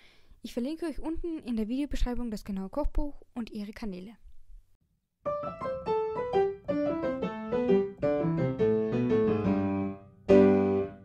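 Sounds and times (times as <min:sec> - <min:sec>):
piano music: 0:05.2 - 0:11.0.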